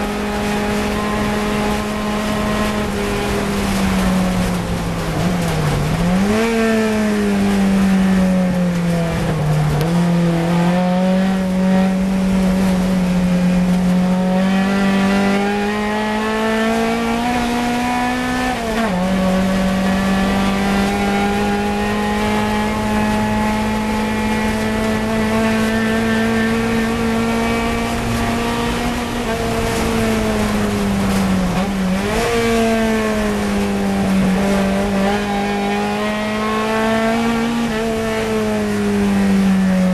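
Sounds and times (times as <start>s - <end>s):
race car engine at high revs: 0.0s - 39.9s.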